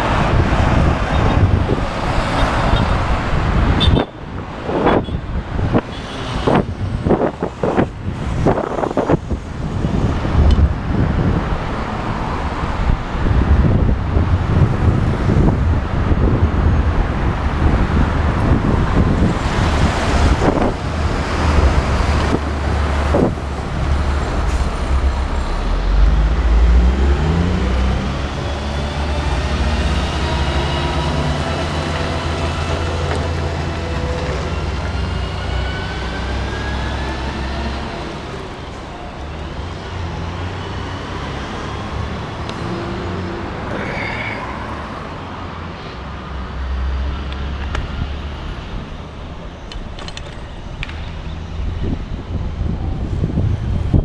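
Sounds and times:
rumble of passing vehicles: 0.0s - 54.0s.

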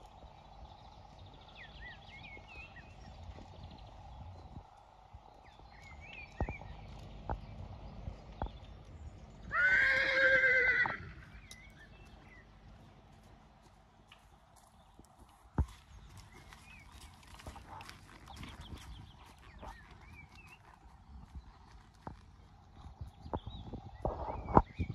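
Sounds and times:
horse whinnying: 9.5s - 11.2s.

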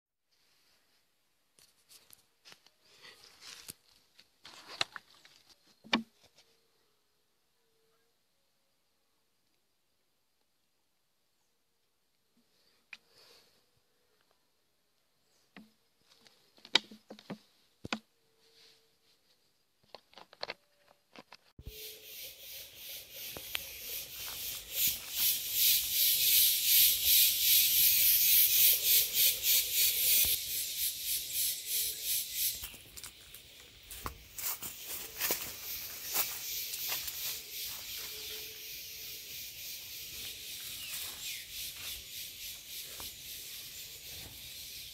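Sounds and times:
high insect drone: 21.7s - 44.9s.

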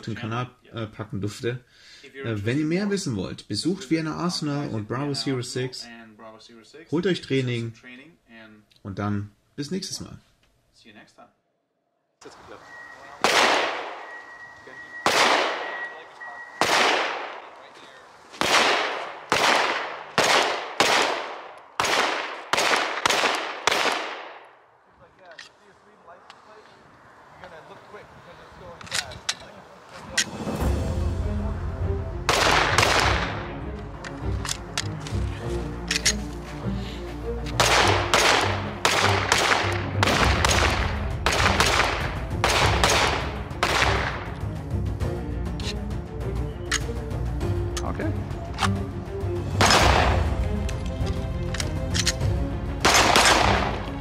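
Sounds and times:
pistol shots with echo: 13.2s - 14.3s, 14.9s - 17.6s, 18.3s - 24.5s, 32.3s - 33.4s, 37.6s - 44.3s, 49.6s - 50.3s, 52.8s - 53.9s
background music with low beat: 30.5s - 54.0s.

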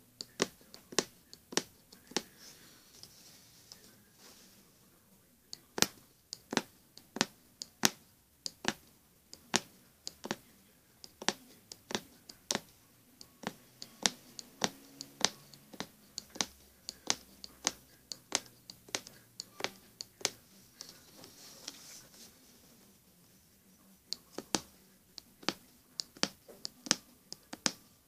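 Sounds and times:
punch needle clicking through fabric: 5.8s - 10.4s, 13.4s - 20.4s, 25.4s - 27.8s.

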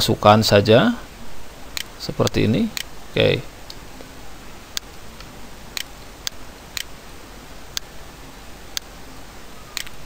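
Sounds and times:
faint steady hiss: 0.0s - 10.0s
computer mouse clicking: 1.7s - 2.9s, 4.7s - 7.0s, 9.7s - 10.0s.

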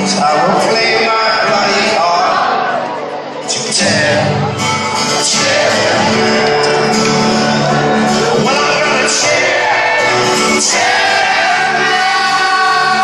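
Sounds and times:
live folk-rock band playing: 0.0s - 13.0s
crowd shouts and whoops: 0.2s - 13.0s
person singing: 3.4s - 13.0s.

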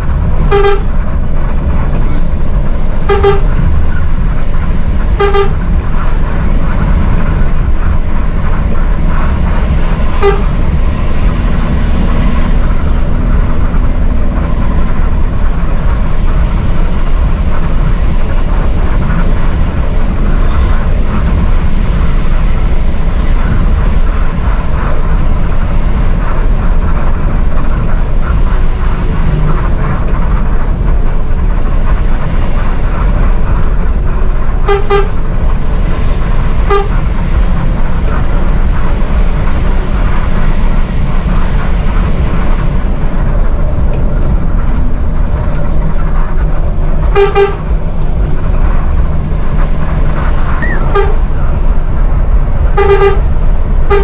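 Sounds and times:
bus engine and road rumble: 0.0s - 54.0s
horn toots: 0.1s - 30.6s, 33.6s - 35.4s, 36.2s - 37.3s, 47.0s - 47.8s, 50.2s - 51.6s, 52.6s - 54.0s.

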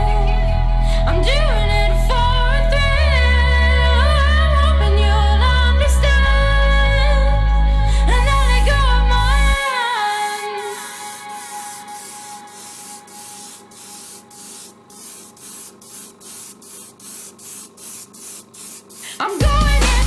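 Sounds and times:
airbrush spraying bursts: 8.3s - 8.8s, 9.9s - 20.0s.

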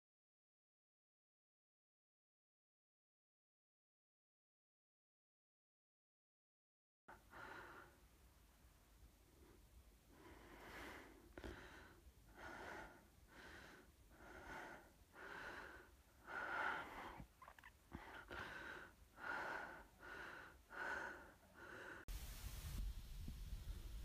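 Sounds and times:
person breathing hard: 7.1s - 8.1s, 9.3s - 22.2s.

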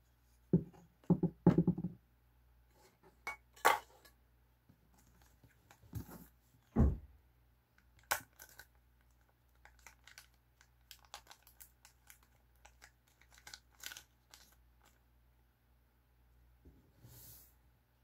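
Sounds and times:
dull thump: 6.8s - 7.1s
plastic bags crinkling: 8.0s - 15.0s.

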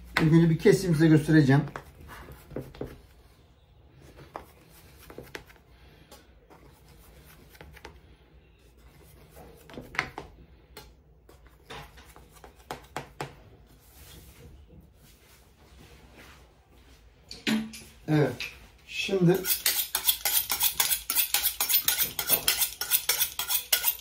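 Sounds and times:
knife cutting through dough: 19.4s - 24.0s.

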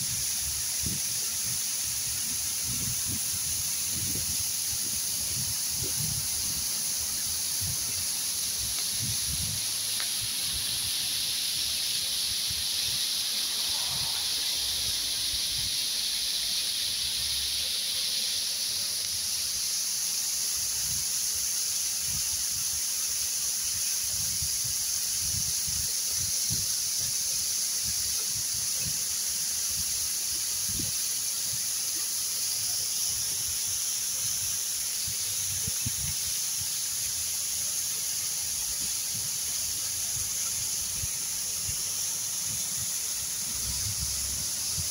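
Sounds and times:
waterfall splashing into pool: 0.0s - 44.9s.

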